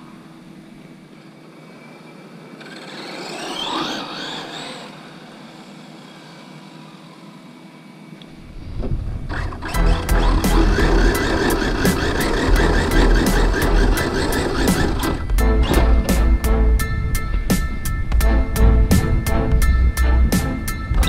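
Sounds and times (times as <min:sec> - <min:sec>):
electric toy car motor whining: 0:01.0 - 0:08.5, 0:09.2 - 0:15.9.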